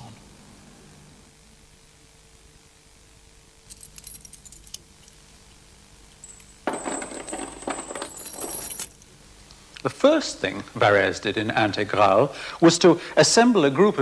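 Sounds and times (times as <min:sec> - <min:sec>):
metal chains jangling: 0:03.7 - 0:05.2, 0:06.2 - 0:09.0.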